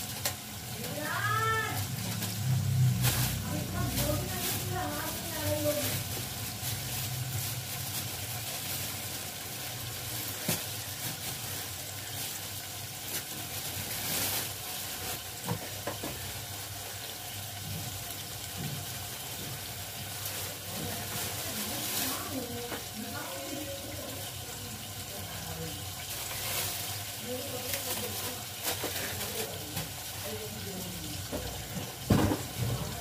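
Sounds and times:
food sizzling in oil: 0.0s - 33.0s.

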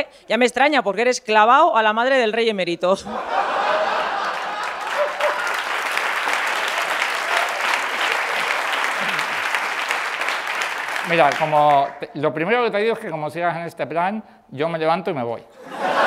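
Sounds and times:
audience applauding: 3.6s - 12.1s.

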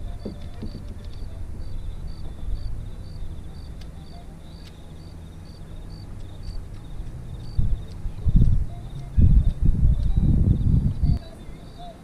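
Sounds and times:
crickets chirping: 0.0s - 12.0s
sharp clicks: 6.2s - 8.6s.

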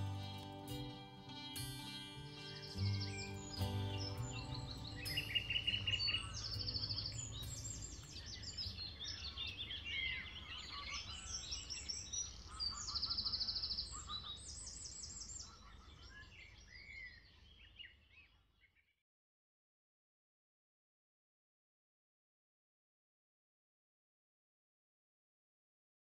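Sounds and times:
acoustic guitar: 0.0s - 8.8s
songbirds singing: 0.0s - 19.0s.

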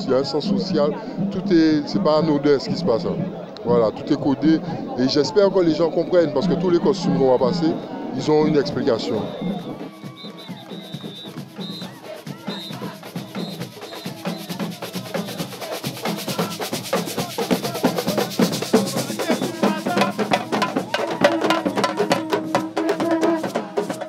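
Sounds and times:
street band drumming: 0.0s - 3.3s, 8.5s - 24.0s.

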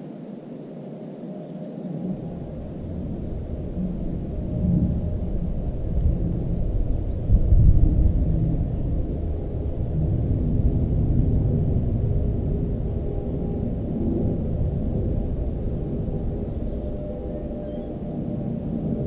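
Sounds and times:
wind buffeting microphone: 1.6s - 19.0s.

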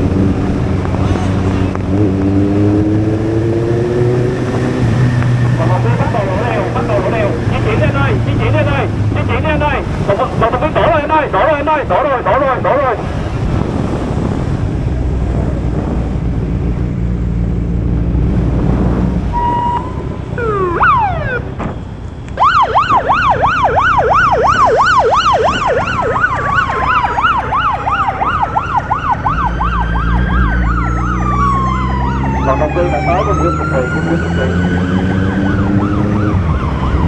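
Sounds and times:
motorcycle siren yelp and wail: 3.1s - 13.2s, 19.2s - 37.0s.

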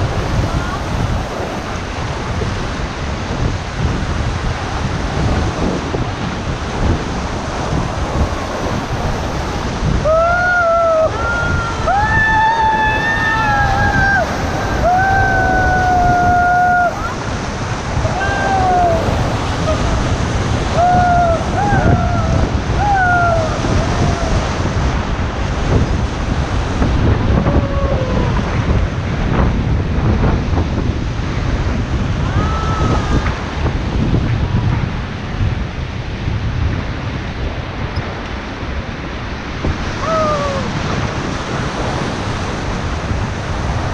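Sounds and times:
whitewater rapids rushing: 0.0s - 35.3s, 37.5s - 43.9s
wind buffeting the microphone: 0.0s - 43.9s
people whooping and cheering: 10.0s - 17.2s, 18.0s - 20.0s, 20.7s - 24.6s, 27.4s - 28.4s, 32.2s - 33.4s, 40.0s - 40.7s.

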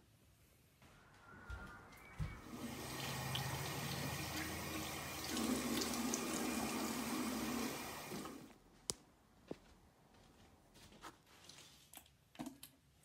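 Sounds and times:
tap water running into sink: 2.6s - 8.5s.

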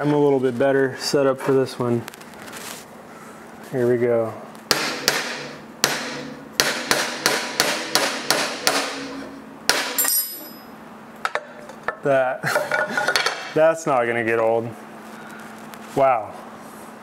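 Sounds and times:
high ringing: 10.0s - 10.8s.

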